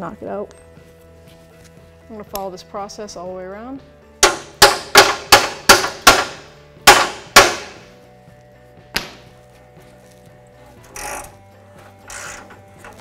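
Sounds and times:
hammer striking metal socket: 0:04.2 - 0:07.8.

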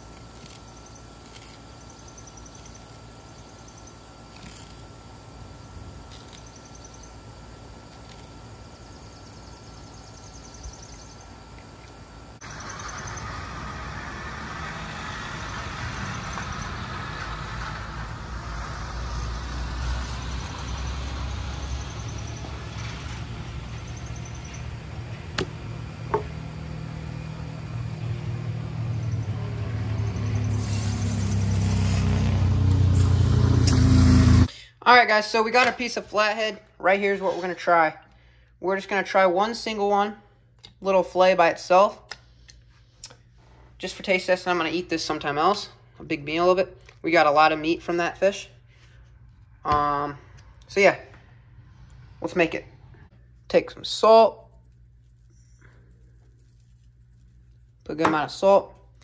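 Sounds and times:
faint hum: 0:00.0 - 0:58.0
garden hose spraying water: 0:28.4 - 0:34.5.

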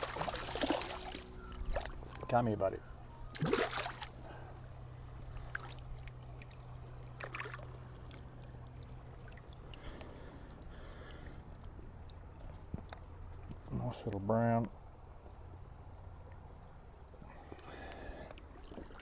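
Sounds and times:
water splashes: 0:00.0 - 0:04.4, 0:05.3 - 0:10.0, 0:18.3 - 0:19.0
creek water lapping and trickling: 0:00.0 - 0:14.1, 0:14.8 - 0:19.0.

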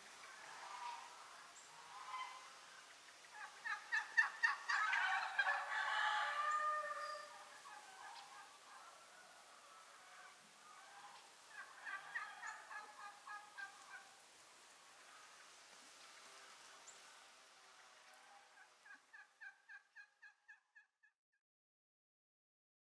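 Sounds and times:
chickens clucking: 0:00.2 - 0:14.2, 0:18.1 - 0:20.6.

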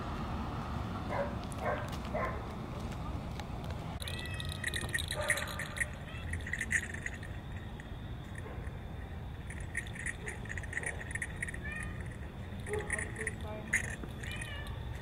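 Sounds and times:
small metal bells jingling: 0:04.0 - 0:15.0.

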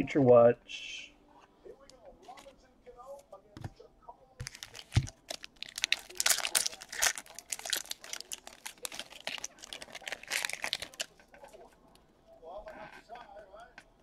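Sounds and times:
card pack wrapper tearing and crinkling: 0:04.4 - 0:11.2.

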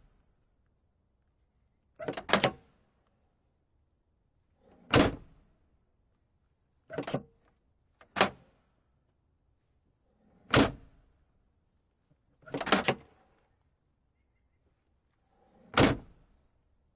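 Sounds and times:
latch clicks rattle: 0:12.5 - 0:13.0.

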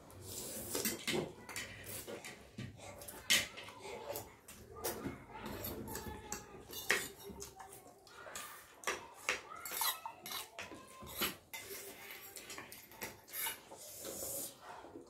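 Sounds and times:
forks clinking on plates: 0:05.4 - 0:07.5, 0:09.6 - 0:13.6.

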